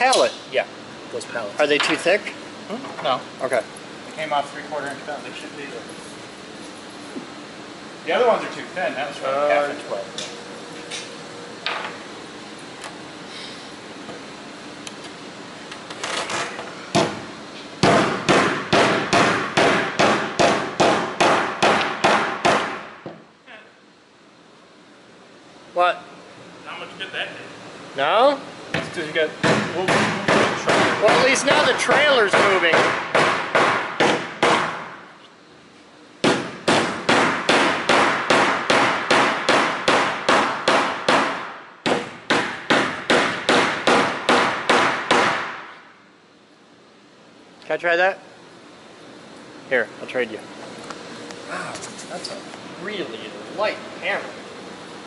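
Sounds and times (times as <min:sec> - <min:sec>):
hammer striking nails into wood: 0:17.8 - 0:22.8, 0:29.4 - 0:31.3, 0:31.9 - 0:34.9, 0:36.2 - 0:45.6.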